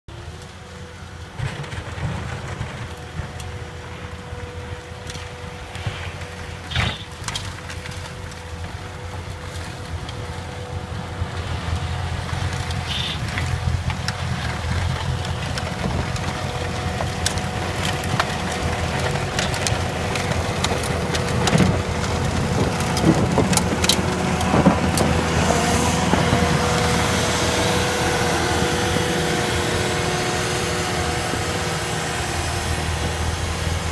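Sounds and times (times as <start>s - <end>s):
diesel engine running under load: 0.1s - 33.9s
hydraulic whine: 15.9s - 33.9s.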